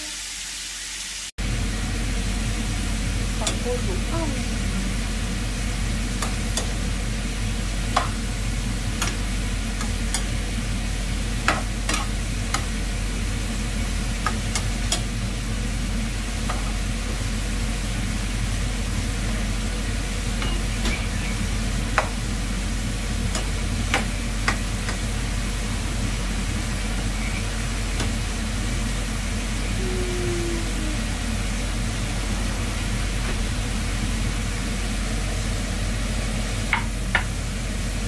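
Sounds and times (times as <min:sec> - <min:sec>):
meat sizzling in a frying pan: 0:00.0 - 0:03.4, 0:04.9 - 0:29.5
steady low hum: 0:01.4 - 0:38.0.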